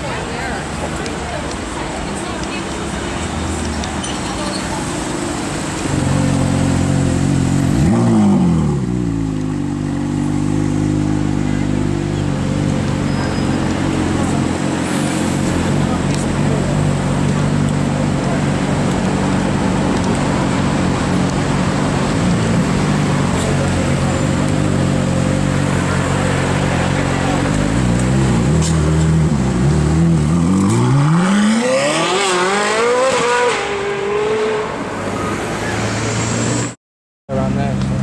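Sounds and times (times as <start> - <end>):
sports car engine idling and revving: 4.6 - 34.9
car accelerating hard: 12.8 - 34.9.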